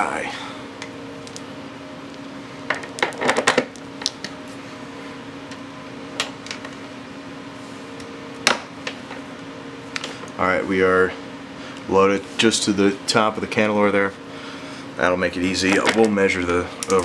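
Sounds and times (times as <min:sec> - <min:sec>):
electric fan humming: 0:00.0 - 0:17.0.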